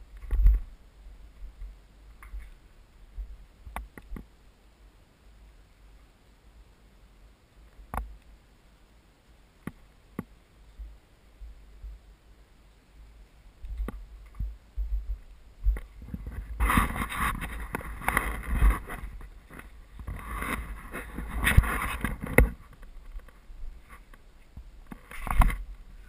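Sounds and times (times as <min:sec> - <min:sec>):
clambering over loose rock: 0:13.7 - 0:24.2.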